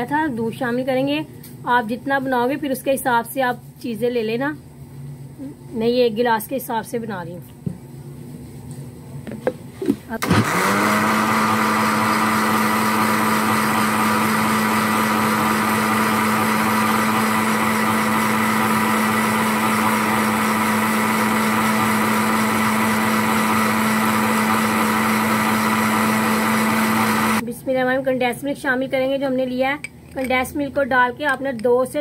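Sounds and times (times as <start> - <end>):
blender running: 10.2 - 27.4.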